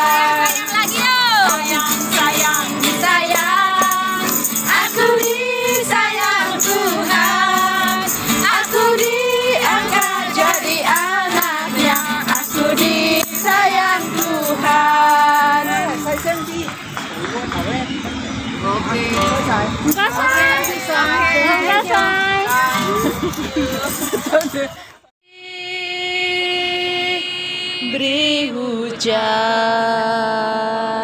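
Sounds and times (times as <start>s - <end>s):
women singing together: 0.0s - 16.8s, 19.9s - 31.0s
strummed acoustic guitar: 0.0s - 24.7s
hand claps: 16.0s - 17.7s.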